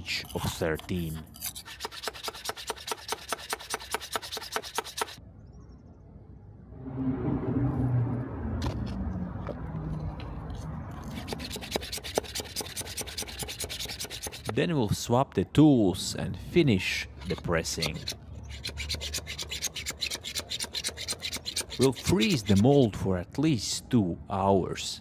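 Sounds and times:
gritty scraping clicks: 17.2 - 22.6.

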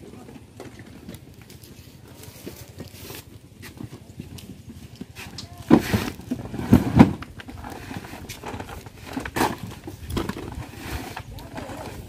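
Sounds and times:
plastic crates knocking and thudding: 5.6 - 12.0.

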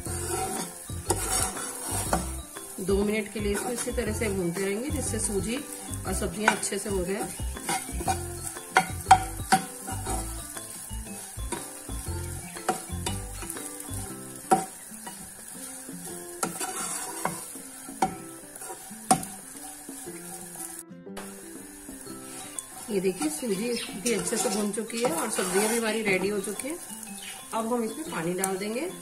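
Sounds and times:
metal spatula scraping frying pan: 0.0 - 20.8, 21.6 - 28.8
light sizzle: 0.0 - 29.0.

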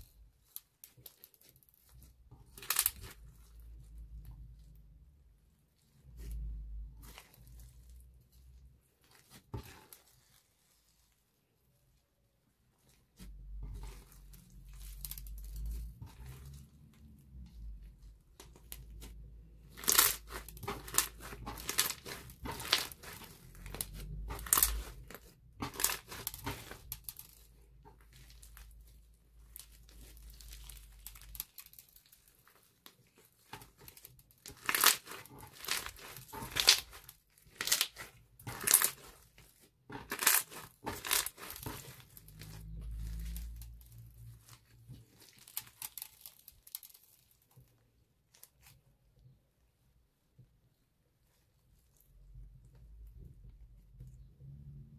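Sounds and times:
hands squishing slime: 0.0 - 49.2.

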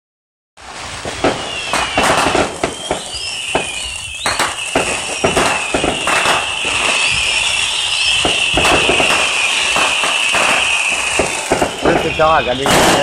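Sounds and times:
fireworks bangs and pops: 0.6 - 13.0
whistling fireworks: 0.6 - 13.0.

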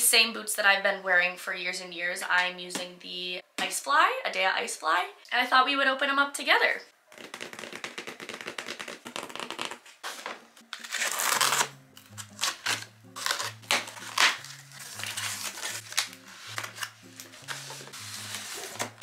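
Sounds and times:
soft background music: 0.0 - 8.8, 10.6 - 19.0
scissors cutting packing tape: 10.7 - 19.0
cardboard scraping and rustling: 12.4 - 19.0.

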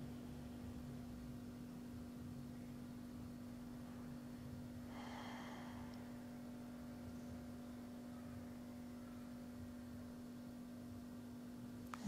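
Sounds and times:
faint electrical hum: 0.0 - 12.0
person breathing out: 4.9 - 6.2.

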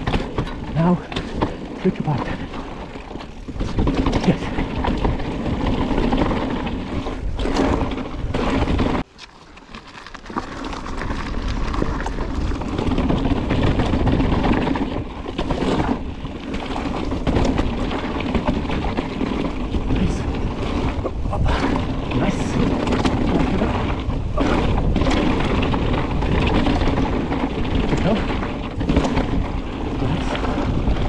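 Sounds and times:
bike frame rattling: 0.0 - 31.0
bike tyres rolling on dirt trail: 0.0 - 31.0
wind rumbling on microphone: 0.0 - 31.0.

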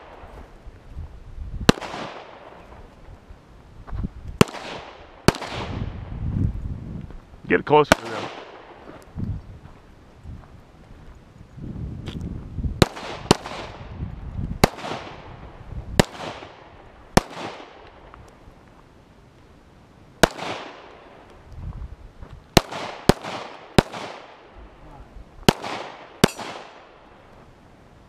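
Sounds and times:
handgun shots with echo: 25.5 - 26.8.

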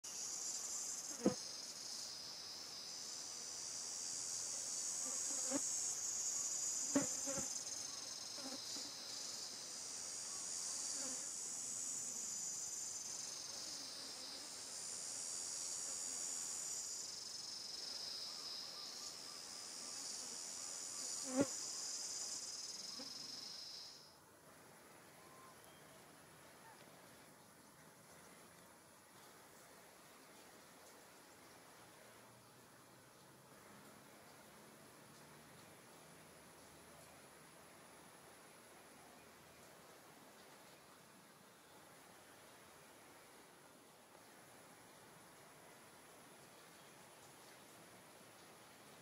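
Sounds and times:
high-pitched insect chorus: 0.0 - 24.2.

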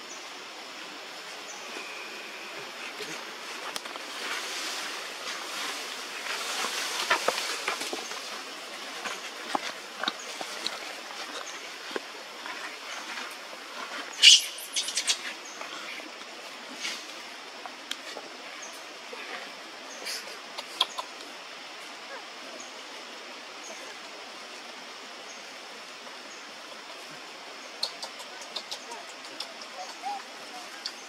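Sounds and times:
dry leaves rustling and crackling: 3.6 - 13.0
monkey squeaking: 14.2 - 15.2.

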